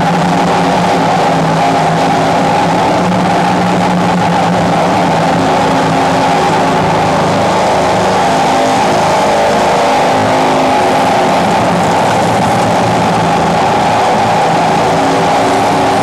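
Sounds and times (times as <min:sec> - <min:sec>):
harsh electronic noise music: 0:00.0 - 0:16.0.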